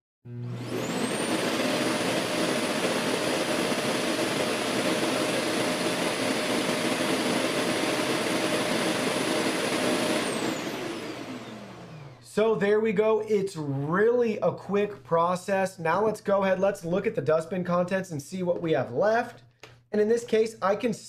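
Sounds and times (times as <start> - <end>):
suction motor rushing air and whine: 0.3 - 12.2.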